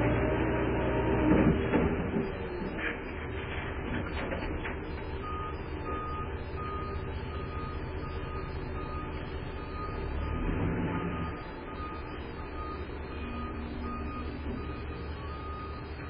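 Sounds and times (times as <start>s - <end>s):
diesel engine running: 0.0s - 16.0s
reverse alarm beeping: 4.8s - 16.0s.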